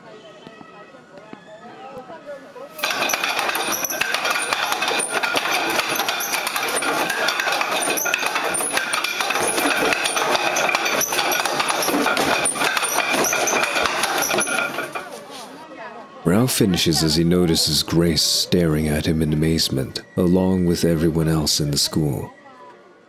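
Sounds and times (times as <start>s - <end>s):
wooden dummy knocking and clacking: 2.8s - 15.2s.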